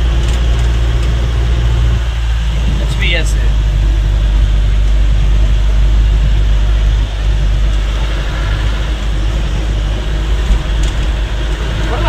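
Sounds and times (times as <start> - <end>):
vehicle engine and tyres rumbling: 0.0 - 12.0.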